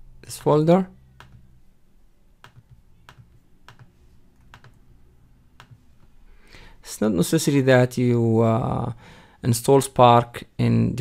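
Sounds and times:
low steady hum: 0:00.0 - 0:11.0
computer mouse clicks: 0:01.2 - 0:01.5, 0:02.4 - 0:04.8, 0:05.6 - 0:06.1.

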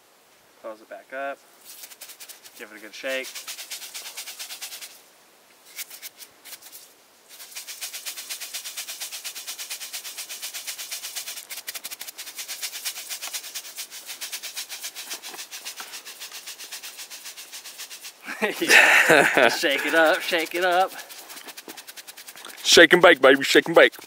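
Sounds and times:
granules rattling in plastic container: 0:18.7 - 0:24.0.

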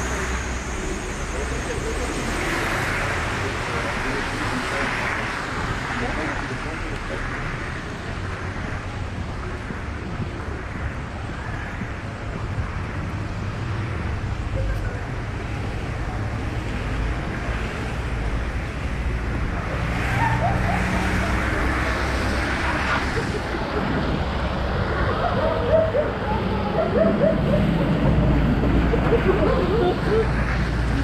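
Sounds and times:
tyres hissing on wet road: 0:00.0 - 0:26.9
cars passing: 0:00.0 - 0:31.0.

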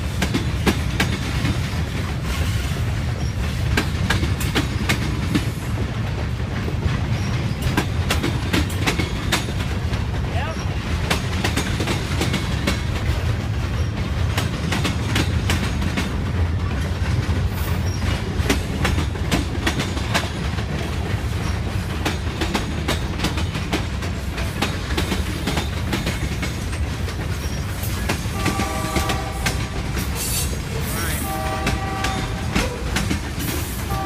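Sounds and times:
freight train rumble: 0:00.0 - 0:34.0
wheels clacking over rail joints: 0:00.0 - 0:34.0.

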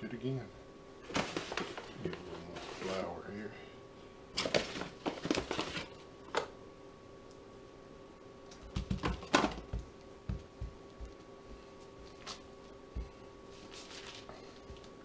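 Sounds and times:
faint steady hum: 0:00.0 - 0:15.0
paper bag rustling: 0:01.0 - 0:03.1, 0:04.4 - 0:06.0, 0:13.5 - 0:14.9
hands patting dough: 0:08.6 - 0:11.3.

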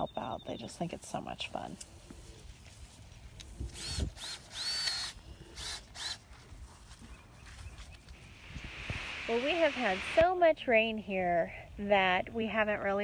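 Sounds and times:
power drill whine: 0:03.8 - 0:06.2.

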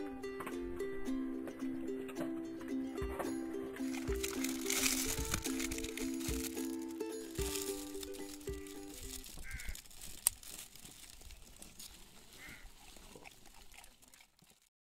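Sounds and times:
background music: 0:00.0 - 0:09.3
plastic poncho rustling: 0:03.9 - 0:14.7.

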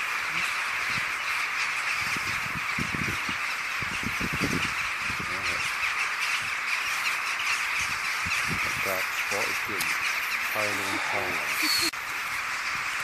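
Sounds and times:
rooks cawing: 0:00.0 - 0:13.0.

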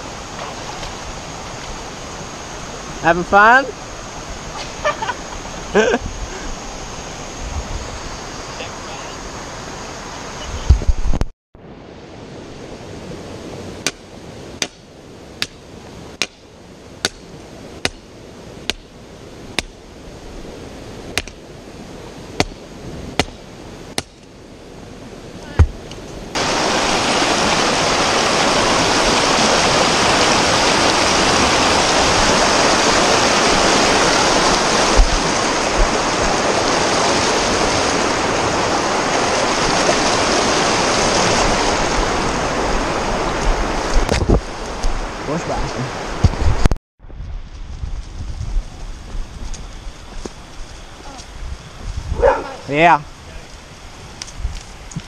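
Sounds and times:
creek water rushing over rocks: 0:00.0 - 0:10.8, 0:25.0 - 0:46.7.

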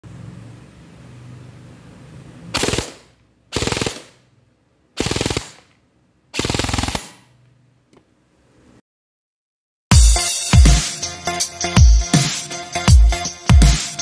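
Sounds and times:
airsoft gun firing bursts: 0:02.6 - 0:04.2, 0:05.0 - 0:05.7, 0:06.4 - 0:07.3.

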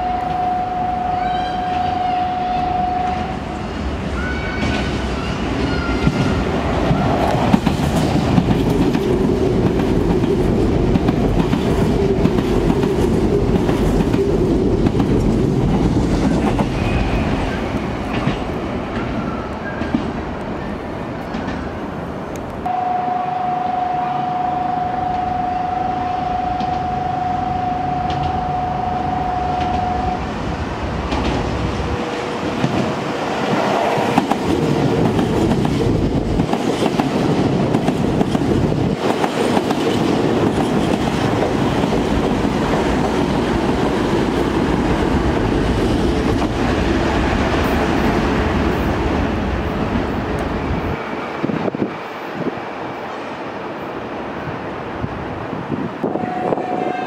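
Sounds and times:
steady high tone: 0:00.0 - 0:03.8, 0:22.6 - 0:30.6
train wheels clattering and rumbling: 0:03.8 - 0:20.6, 0:30.6 - 0:52.0.

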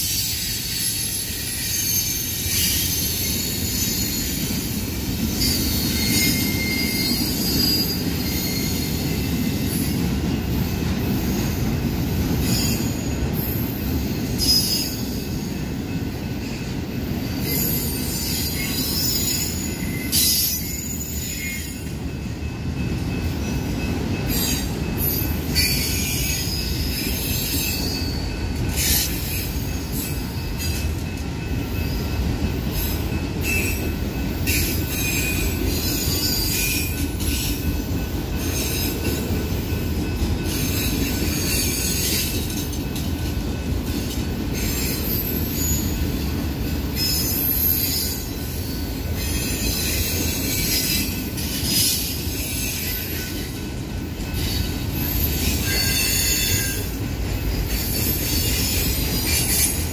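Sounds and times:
train wheels rumbling on rail: 0:00.0 - 0:59.9
high-pitched wheel squeal: 0:00.1 - 0:04.5, 0:05.4 - 0:09.7, 0:14.4 - 0:15.2, 0:54.4 - 0:56.9.

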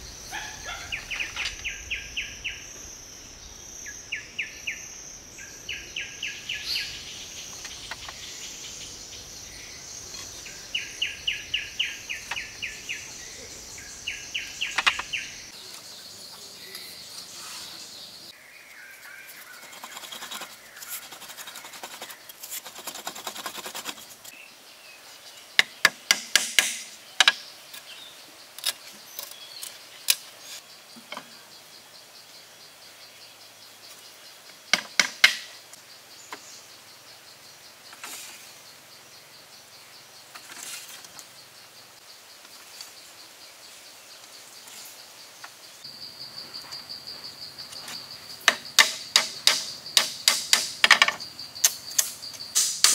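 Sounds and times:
high insect trill: 0:00.0 - 0:52.9
bamboo slats rustling and scraping: 0:07.5 - 0:08.3, 0:10.0 - 0:10.9, 0:14.4 - 0:15.9, 0:19.2 - 0:24.4, 0:25.6 - 0:28.0, 0:28.6 - 0:31.4, 0:34.8 - 0:35.5, 0:37.9 - 0:38.6, 0:40.3 - 0:41.3, 0:46.5 - 0:52.9
sharp wooden knocks: 0:25.6 - 0:27.4, 0:34.7 - 0:35.5, 0:48.4 - 0:51.2.

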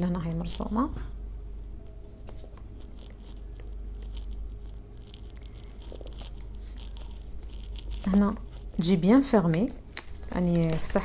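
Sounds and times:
low hum: 0:00.0 - 0:09.5.

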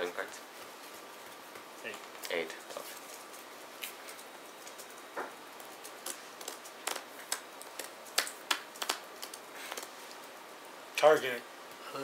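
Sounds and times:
trading cards clicking on playmats: 0:05.6 - 0:09.9.

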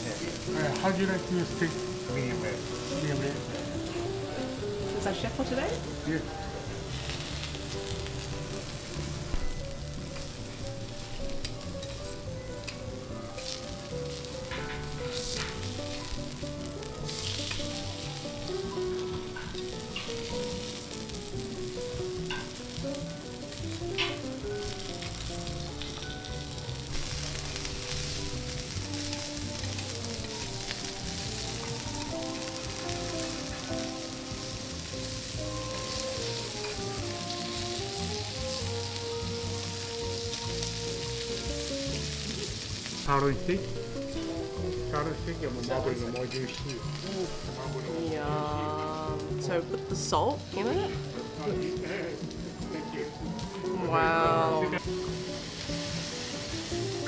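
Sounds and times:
food sizzling on a griddle: 0:00.0 - 0:57.0
soft melody: 0:00.0 - 0:57.0
knife and spatula clinking on steel: 0:45.6 - 0:47.0.

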